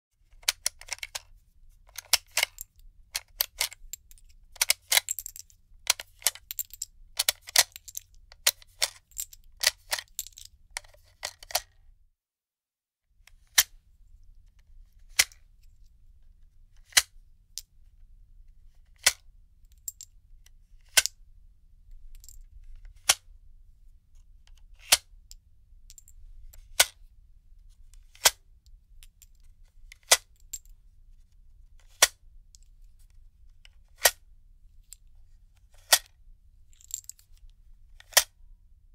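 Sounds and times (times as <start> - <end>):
metal clicks of cartridges unloading: 0.3 - 1.3, 1.9 - 11.7, 35.7 - 36.1, 36.7 - 37.4, 38.0 - 38.3.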